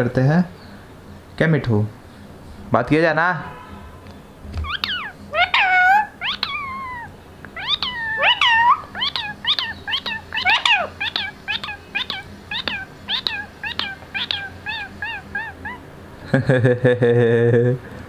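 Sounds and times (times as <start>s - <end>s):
parakeet squawking: 4.6s - 16.0s.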